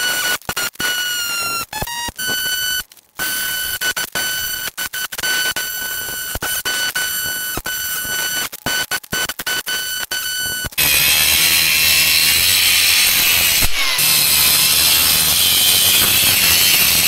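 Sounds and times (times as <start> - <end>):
rotary hammer chipping concrete: 10.6 - 17.0.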